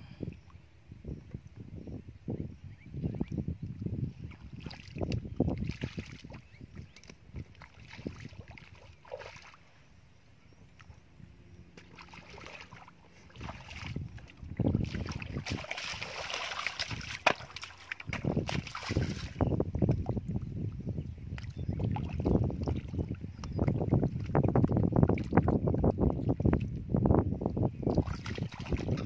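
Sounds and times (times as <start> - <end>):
bare feet wading through water: 4.3 - 9.8, 11.6 - 20.1, 21.4 - 26.7, 27.9 - 29.0.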